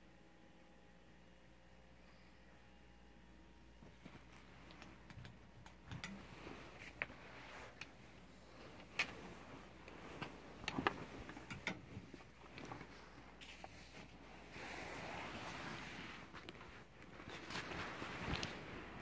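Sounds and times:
jackets rustling: 6.2s - 19.0s.

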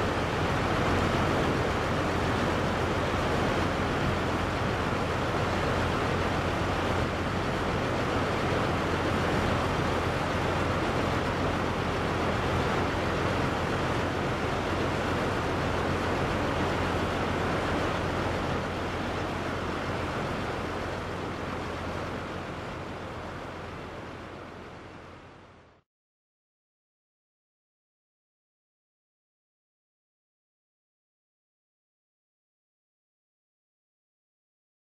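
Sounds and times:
waterfall roaring: 0.0s - 25.8s.

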